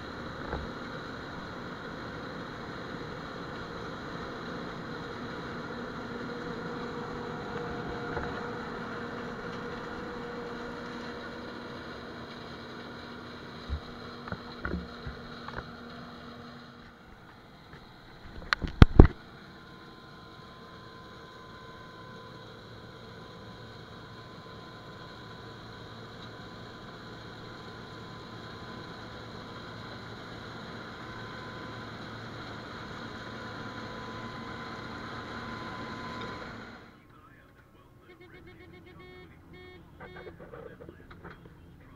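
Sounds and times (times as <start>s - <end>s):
combine harvester humming: 0.0s - 41.9s.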